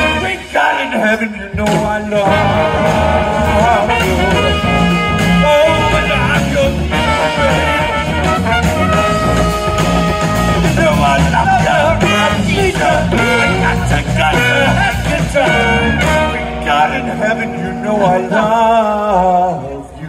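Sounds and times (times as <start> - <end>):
live rock band playing: 0.0 - 20.0
horn section held notes: 2.2 - 11.2, 12.0 - 17.0.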